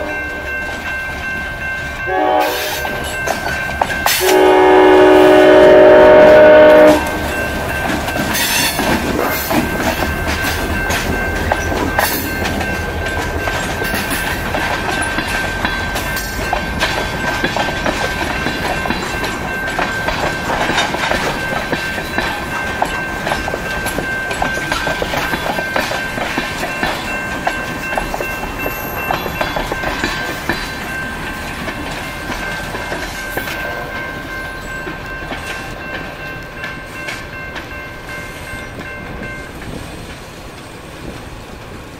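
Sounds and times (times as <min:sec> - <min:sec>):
train wheels clattering over rail joints: 0:06.6 - 0:33.6.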